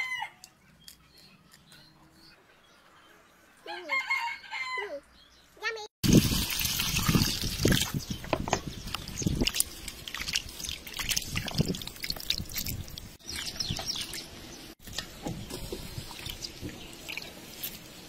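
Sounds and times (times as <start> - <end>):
hands washing fish in water: 6.1 - 8.0, 9.0 - 18.0.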